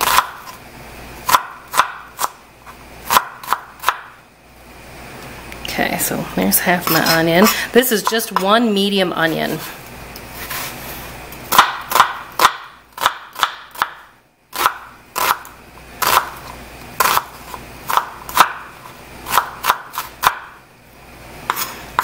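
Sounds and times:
knife chopping on cutting board: 0.0s - 0.6s, 1.2s - 2.4s, 3.1s - 4.1s, 11.5s - 14.0s, 17.0s - 18.7s, 19.3s - 20.5s, 21.5s - 22.0s.

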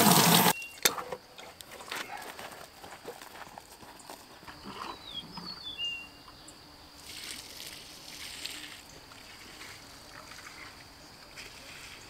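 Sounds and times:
hose water splashing: 0.0s - 0.6s, 7.0s - 12.0s.

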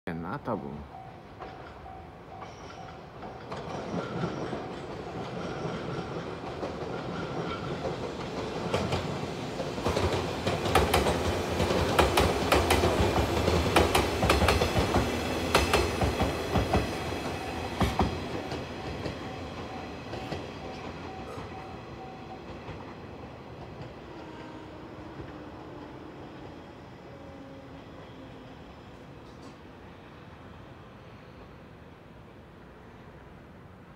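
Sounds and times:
electric train passing: 0.2s - 33.9s
train wheels clicking over rail joints: 1.4s - 21.7s.

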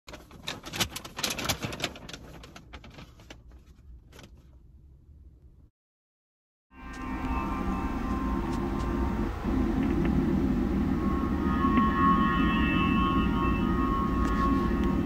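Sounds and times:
low hum: 6.7s - 15.0s.

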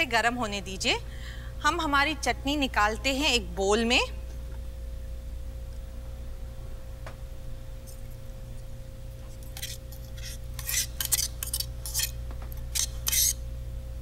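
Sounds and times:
spoon scraping blender jar: 9.3s - 13.4s.

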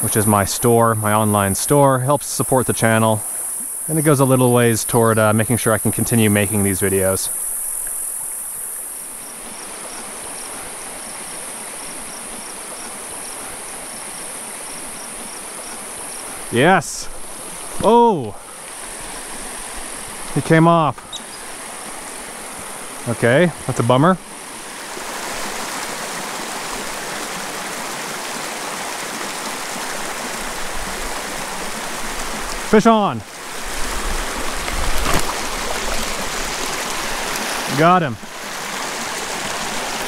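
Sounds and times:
insect trilling: 0.0s - 24.6s
shallow creek rushing: 0.0s - 40.0s.

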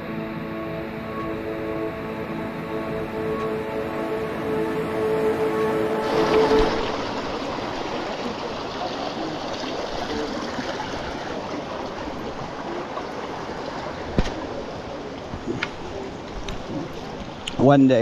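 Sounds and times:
stream flowing over rocks: 5.7s - 17.4s.

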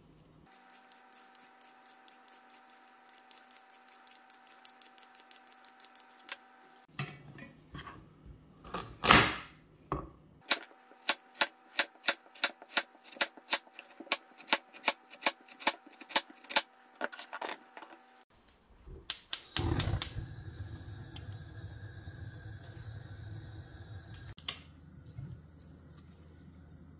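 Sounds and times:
vegetable peeler scraping: 0.5s - 6.3s, 11.1s - 18.1s
gas flame hissing: 18.8s - 24.7s
gas igniter clicking: 19.1s - 20.3s.

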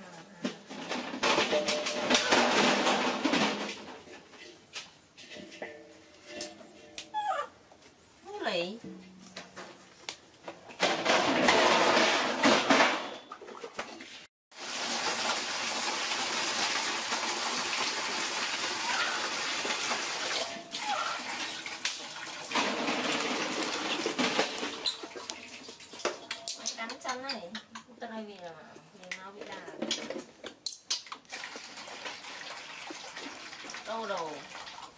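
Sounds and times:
water pouring into steel basin: 14.6s - 26.5s, 31.3s - 34.9s.

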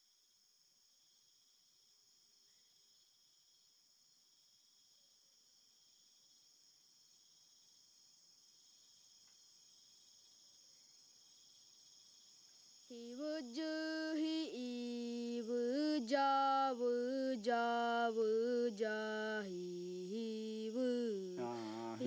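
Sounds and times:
insects trilling: 0.0s - 22.0s
person chanting slowly: 19.5s - 22.0s.

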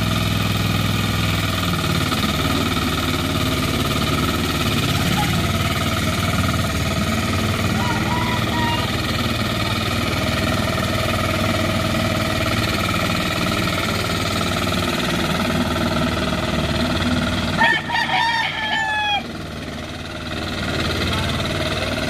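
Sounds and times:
small engine running: 0.0s - 22.0s
rooster crowing: 7.6s - 9.2s, 17.5s - 19.4s.

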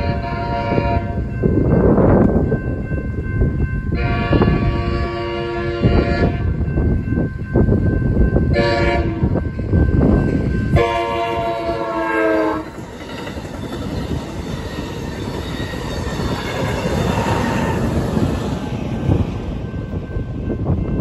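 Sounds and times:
train air horn blasts: 0.0s - 1.2s, 4.0s - 6.6s, 8.5s - 9.4s, 10.7s - 12.8s
crossing bell ringing: 0.0s - 21.0s
train wheels rumbling on rails: 0.0s - 21.0s.

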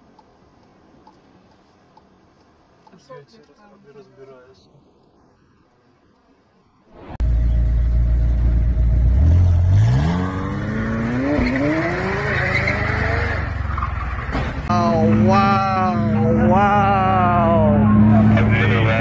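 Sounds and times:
car engine revving: 7.2s - 14.2s, 14.9s - 19.0s.

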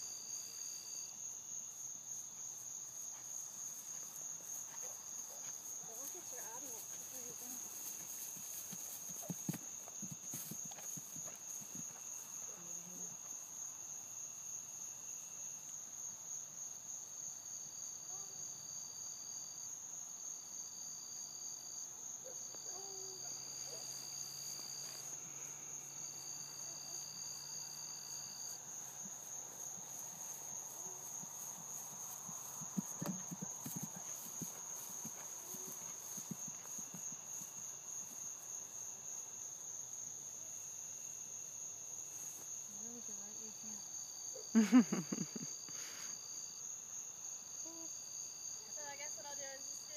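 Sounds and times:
crickets trilling: 0.0s - 49.9s
horse hooves on grass: 2.1s - 13.5s, 23.7s - 40.2s.

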